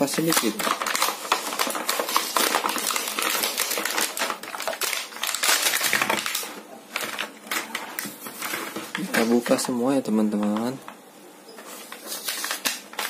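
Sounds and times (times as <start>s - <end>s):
plastic packaging being torn open: 0.0s - 9.4s, 12.2s - 13.0s.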